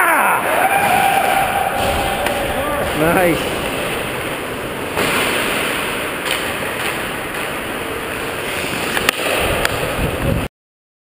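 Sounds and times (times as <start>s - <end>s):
steady rushing noise: 0.5s - 10.5s
skates scraping on ice: 0.6s - 10.4s
hockey stick hitting puck: 0.8s - 4.3s, 5.0s - 7.6s.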